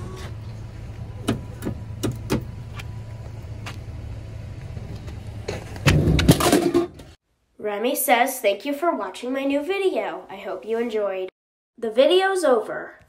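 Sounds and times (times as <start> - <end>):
vending machine humming: 0.0 - 7.1
can clattering into bin: 5.9 - 7.1.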